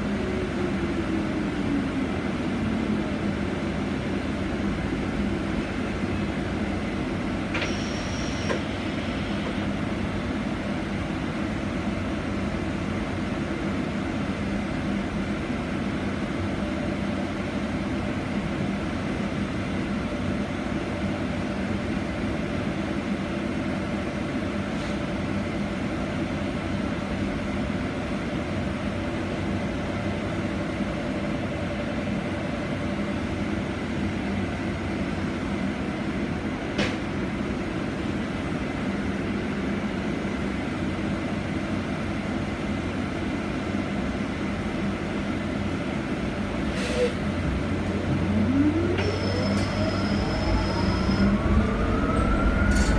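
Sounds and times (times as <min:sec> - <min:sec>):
bus cabin hum and rumble: 0:00.0 - 0:52.9
high-pitched squeal: 0:48.5 - 0:52.9.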